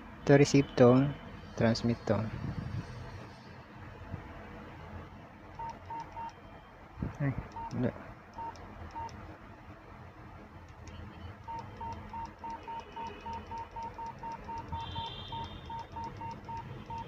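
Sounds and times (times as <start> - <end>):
short keypad beeps: 5.6 - 6.4, 7.5 - 7.8, 8.4 - 9.1, 10.9 - 17.0.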